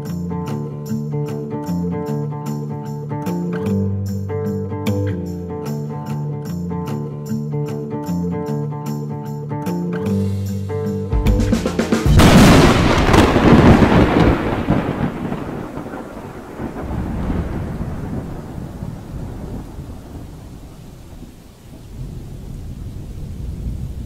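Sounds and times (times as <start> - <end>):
thunder crash and rumble: 12.1 - 24.0.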